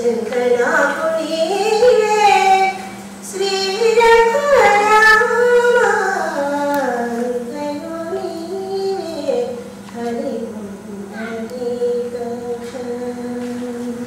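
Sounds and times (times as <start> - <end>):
steady low hum: 0.0 - 14.0
woman singing slow melody: 0.0 - 14.0.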